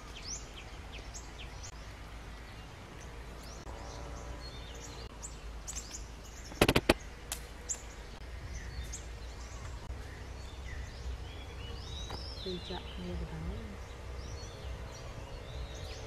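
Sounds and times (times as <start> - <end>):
low outdoor rumble: 0.0 - 16.0
small birds chirping: 0.0 - 16.0
sharp clicks: 5.7 - 7.5.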